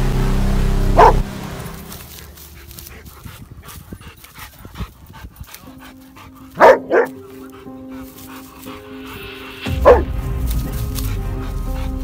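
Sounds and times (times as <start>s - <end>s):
background music: 0.0s - 12.0s
dog barking: 1.0s - 1.2s, 6.6s - 7.2s, 9.7s - 10.1s
rustling in dry stubble: 1.6s - 12.0s
dog panting: 2.2s - 12.0s.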